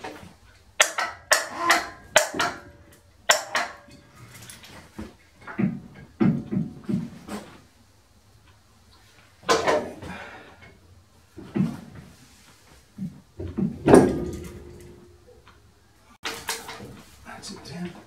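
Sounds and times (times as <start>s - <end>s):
heavy steel parts clunking: 0.0s - 7.6s, 13.2s - 15.6s, 16.2s - 17.2s
struck metal ringing: 0.8s - 4.5s, 13.8s - 15.4s.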